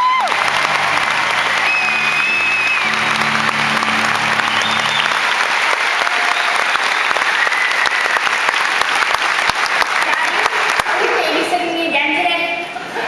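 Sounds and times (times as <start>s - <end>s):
audience applauding: 0.0s - 11.5s
music playing: 0.3s - 7.2s.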